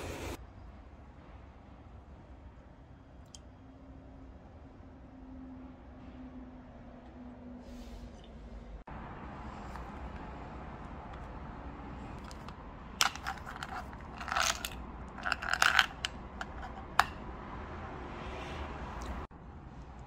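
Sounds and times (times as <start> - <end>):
hard candies rattling in case: 12.2 - 17.0.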